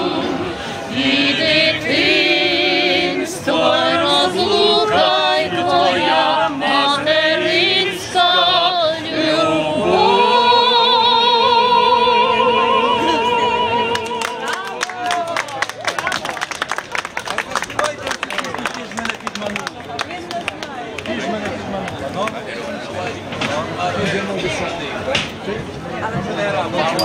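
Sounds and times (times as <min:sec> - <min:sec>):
man and woman singing unaccompanied: 0:00.0 - 0:14.6.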